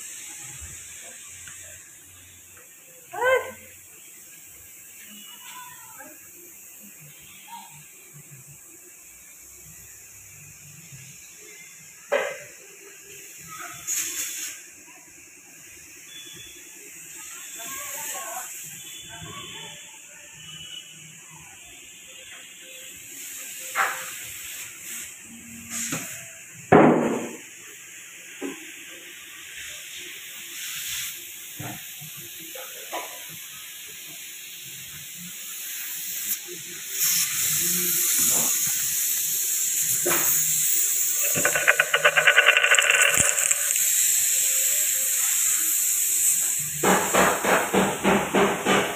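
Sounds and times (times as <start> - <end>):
spray gun hissing: 35.4 - 41.3, 43.8 - 47.0
fast rattle: 39.6 - 45.2
knocks and clicks: 41.2 - 43.8.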